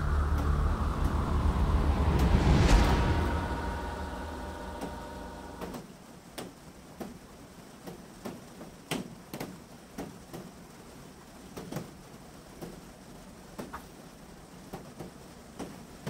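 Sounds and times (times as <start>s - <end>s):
lingering tone: 0.0s - 5.8s.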